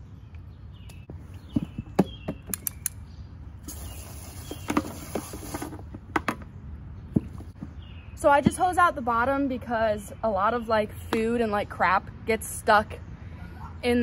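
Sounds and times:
hose nozzle spraying water: 3.6 - 5.8.

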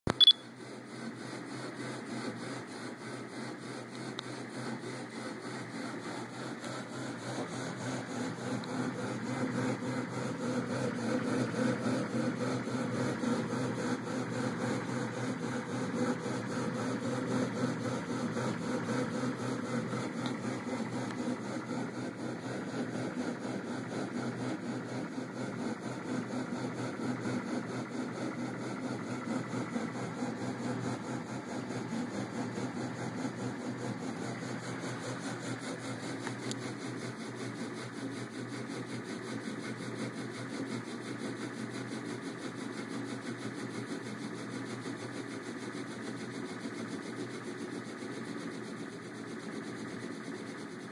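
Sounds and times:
stepper motors humming: 3.1 - 38.0.

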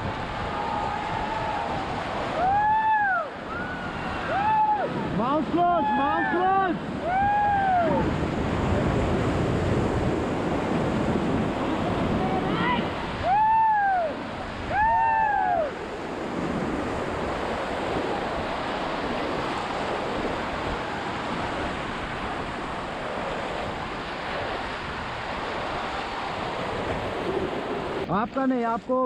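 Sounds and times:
wind on microphone: 0.0 - 28.1
river rapids rushing: 0.0 - 29.0
people shouting: 0.5 - 8.1.

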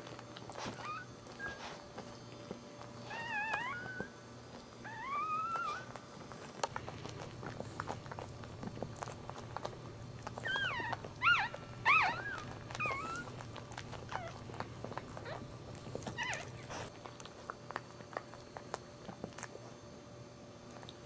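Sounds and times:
puppy squeaking: 0.6 - 1.7, 3.0 - 4.1, 4.8 - 6.0, 10.3 - 16.9.

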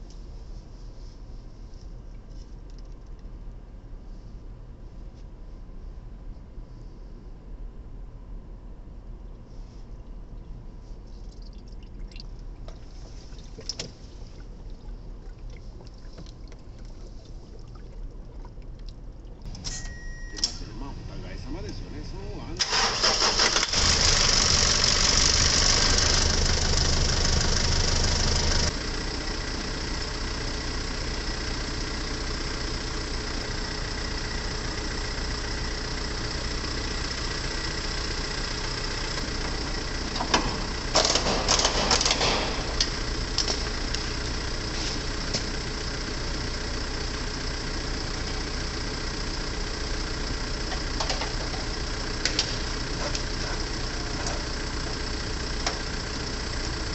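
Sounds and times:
truck diesel engine idling: 19.5 - 56.9
clicks and clatter: 40.2 - 44.0.

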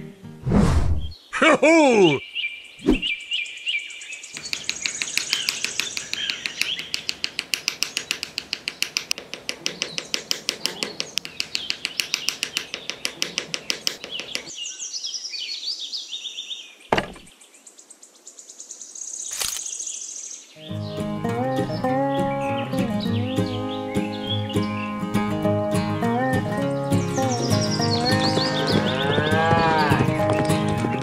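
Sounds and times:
birds chirping: 1.0 - 31.0
small hammer tapping wooden posts: 4.4 - 14.6, 27.2 - 31.0
single knocks: 16.9 - 17.3.

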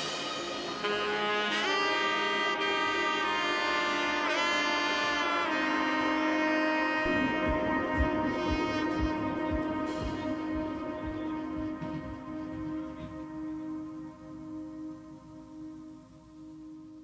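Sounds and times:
sliding held melody notes: 0.0 - 17.0
low steady beat: 6.9 - 16.9.

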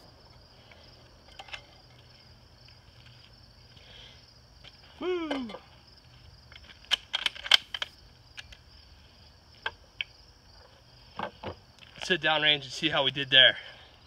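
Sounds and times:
crickets chirping: 0.0 - 14.0
rifle bolt metallic clicks: 6.8 - 8.6.

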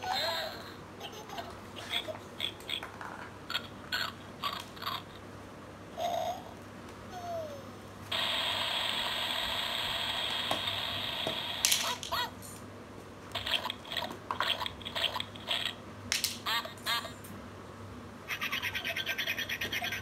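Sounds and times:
rain hiss from toy speaker: 8.1 - 12.0.

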